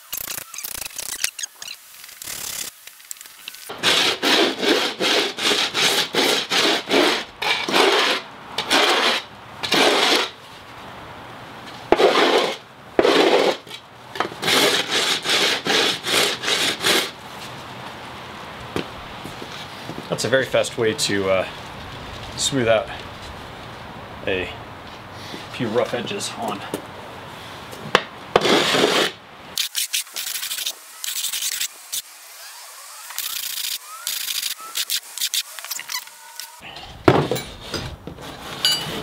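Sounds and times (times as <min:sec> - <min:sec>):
wooden board scraping on concrete: 0:03.7 - 0:10.4, 0:11.9 - 0:17.5, 0:28.3 - 0:29.2.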